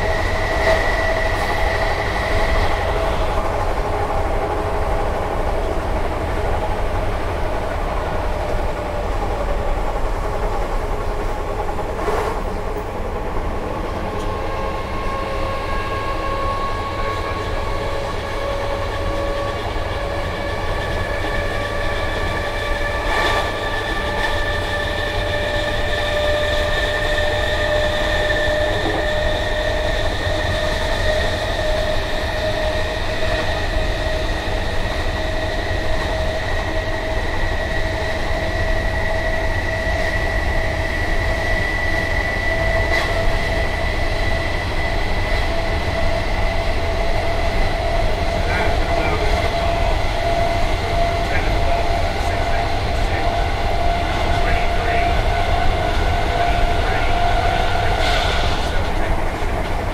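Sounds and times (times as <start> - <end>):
train running rumble: 0.0 - 59.9
traction motors whining: 13.6 - 59.9.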